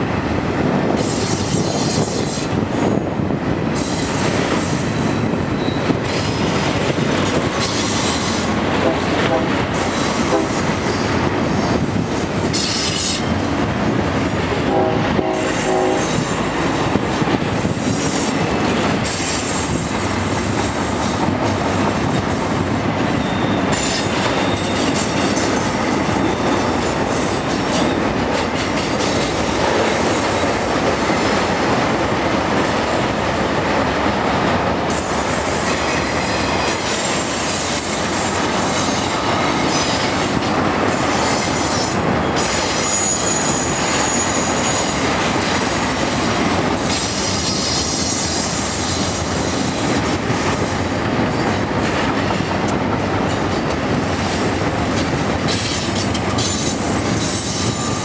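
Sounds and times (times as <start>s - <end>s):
freight train wheels on rails: 0.0s - 58.0s
wheel squeals: 5.6s - 5.9s, 23.1s - 26.6s, 41.4s - 45.0s, 55.5s - 58.0s
locomotive horn: 8.7s - 10.6s, 14.5s - 16.6s.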